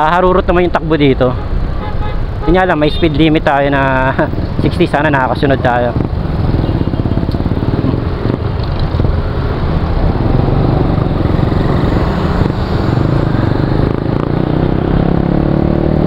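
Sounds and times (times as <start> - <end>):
riding noise: 2.8 - 15.4
scooter engine drone: 6.0 - 16.0.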